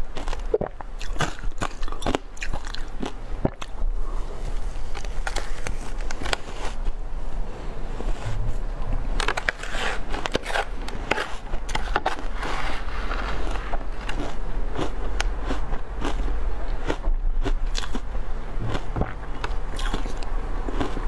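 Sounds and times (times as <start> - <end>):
ice being chewed: 0.0 - 3.8, 9.2 - 21.0
metal spoon scraping ice: 9.3 - 13.8.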